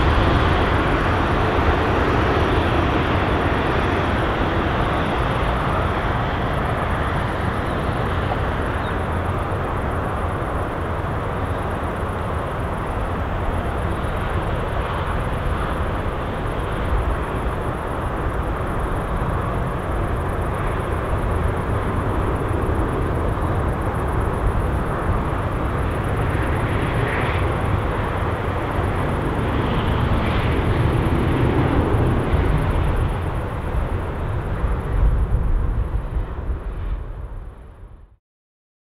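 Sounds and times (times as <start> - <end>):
jet engine rumble: 0.0 - 38.2.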